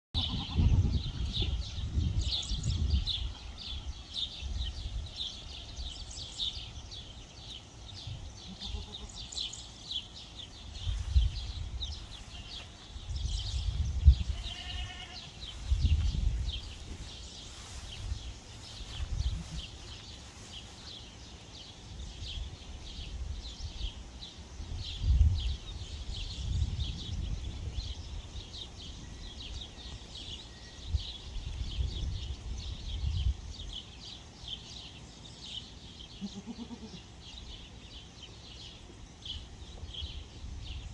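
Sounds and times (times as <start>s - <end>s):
bleat-like animal call: 0.2s - 1.6s, 8.4s - 9.2s, 12.3s - 12.7s, 14.2s - 15.3s, 36.2s - 37.0s.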